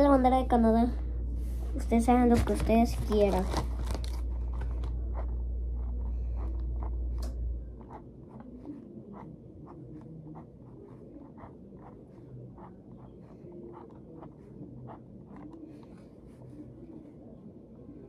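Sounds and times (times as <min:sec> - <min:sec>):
low rumble: 0:00.5 - 0:02.9
pen scratching on paper: 0:04.4 - 0:16.8.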